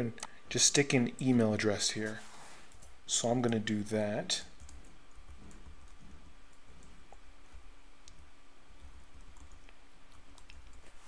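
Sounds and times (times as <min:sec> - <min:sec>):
keyboard typing: 0:04.6 - 0:07.0, 0:08.8 - 0:10.9.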